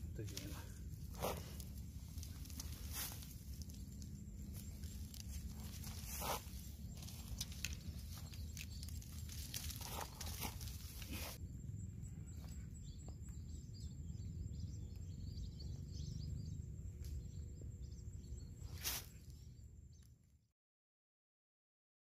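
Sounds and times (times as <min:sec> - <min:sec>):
steady low rumble: 0:00.0 - 0:19.8
rustling of crab pot: 0:01.1 - 0:11.4.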